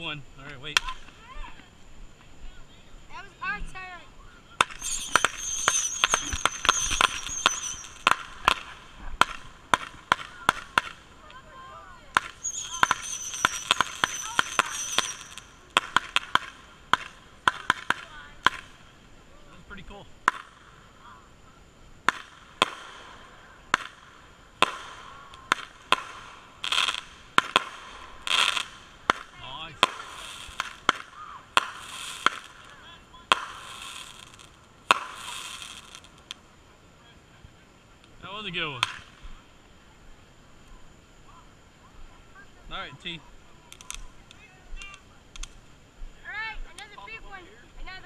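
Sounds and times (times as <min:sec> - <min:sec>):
sharp pops and cracks: 0:04.6 - 0:11.4, 0:12.1 - 0:18.8, 0:22.0 - 0:23.0, 0:23.7 - 0:32.6, 0:33.3 - 0:36.4, 0:38.8 - 0:39.3, 0:43.7 - 0:45.6
firework spraying sparks: 0:04.6 - 0:19.3, 0:22.0 - 0:36.6, 0:37.8 - 0:40.8, 0:43.0 - 0:45.8
wavering high whistle: 0:04.8 - 0:08.2, 0:12.4 - 0:15.5.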